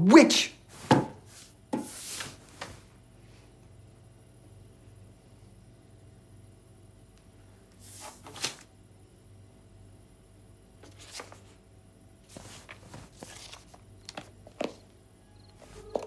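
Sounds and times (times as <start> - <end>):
low room hum: 0.0 - 16.0
cards rustling and crackling: 7.9 - 8.7, 10.8 - 11.6, 12.3 - 14.8.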